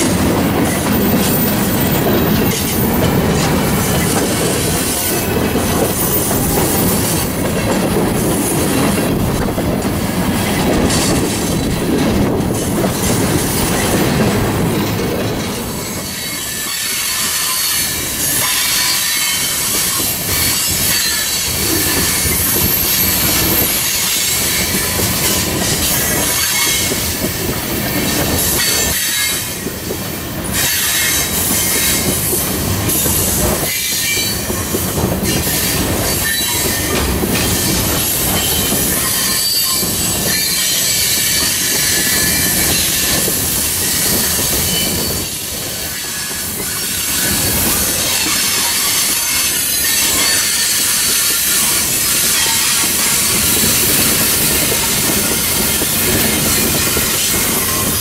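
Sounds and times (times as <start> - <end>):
clacking over rail joints: 0.0 - 58.0
freight train wheels on rails: 0.0 - 58.0
wheel squeal: 15.8 - 27.1, 30.6 - 58.0.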